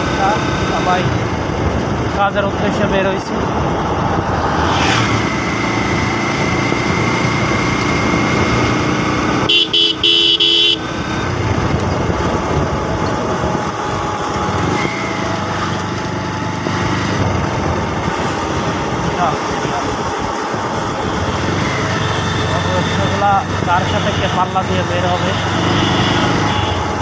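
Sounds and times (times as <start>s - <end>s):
motorcycle engine running: 0.0s - 23.8s
wind rush: 1.1s - 9.2s, 11.1s - 15.5s, 16.6s - 22.3s
vehicle horn blasts: 9.4s - 10.9s, 25.6s - 26.9s.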